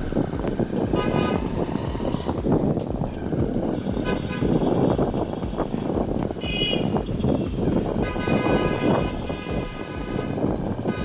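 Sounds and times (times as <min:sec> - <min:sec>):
wind and road noise: 0:00.0 - 0:11.0
car horn toots: 0:00.8 - 0:02.4, 0:03.7 - 0:11.0.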